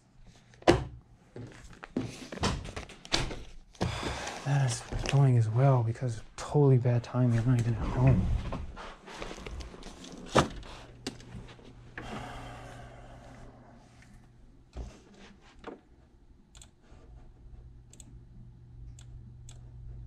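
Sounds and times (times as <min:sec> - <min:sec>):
computer mouse clicking: 0:16.5 - 0:16.8.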